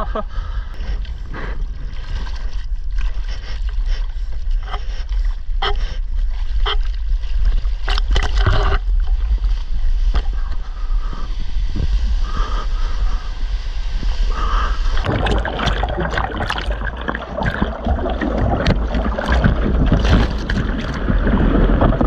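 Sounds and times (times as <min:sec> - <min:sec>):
low rumble of water: 0:00.0 - 0:22.0
wind buffeting microphone: 0:07.0 - 0:22.0
seawater splashing: 0:10.0 - 0:22.0.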